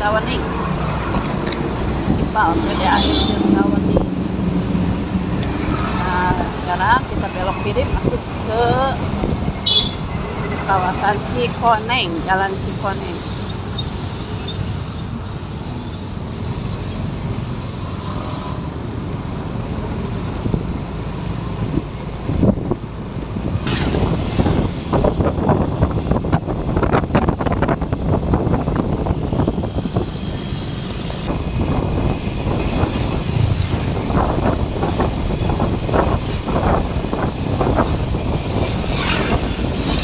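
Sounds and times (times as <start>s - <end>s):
road noise: 0.0s - 40.0s
wind on microphone: 1.0s - 11.4s, 21.6s - 40.0s.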